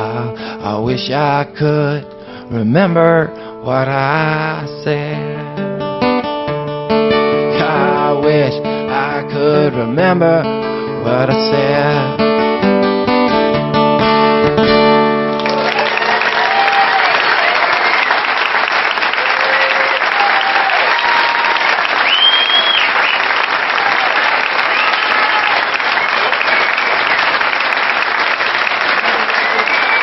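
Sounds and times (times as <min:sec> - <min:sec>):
audience clapping: 0:15.3 - 0:30.0
cheers and whistles: 0:15.4 - 0:27.4, 0:29.0 - 0:30.0.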